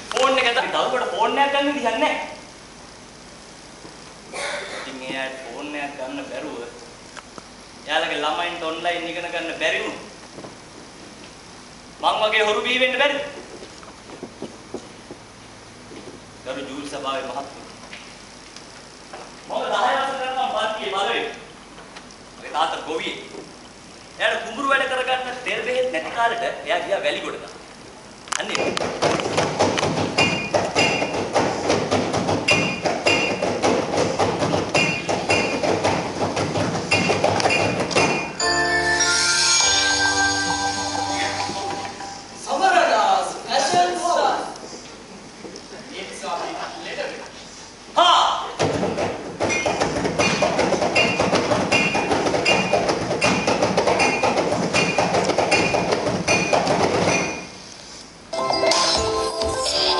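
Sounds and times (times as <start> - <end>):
rhythmic metallic hammering: 29.0 - 42.4, 49.5 - 57.5
music with sustained notes: 38.4 - 42.4, 58.3 - 59.9.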